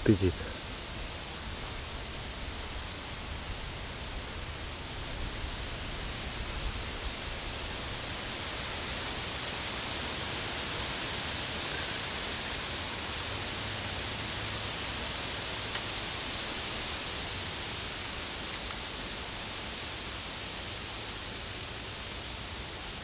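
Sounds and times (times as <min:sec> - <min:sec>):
outdoor background hiss: 0:00.0 - 0:23.0
faint ticks: 0:18.5 - 0:18.8.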